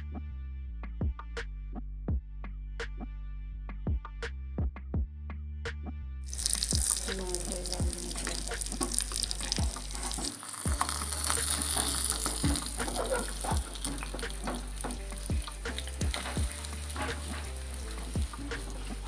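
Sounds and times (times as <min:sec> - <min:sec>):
food sizzling in hot oil: 0:06.3 - 0:19.0
spoon knocking and scraping pan: 0:06.3 - 0:19.0.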